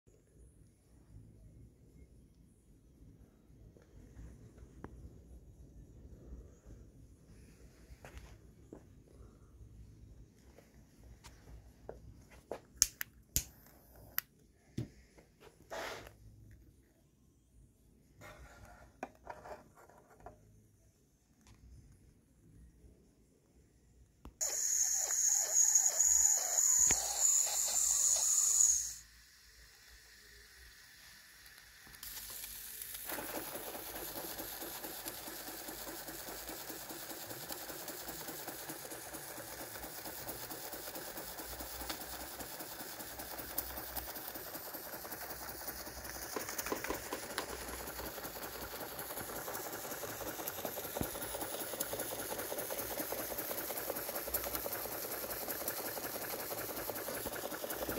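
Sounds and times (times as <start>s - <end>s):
steam hissing loudly: 24.4s - 57.9s
toy steam engine running: 24.4s - 57.9s.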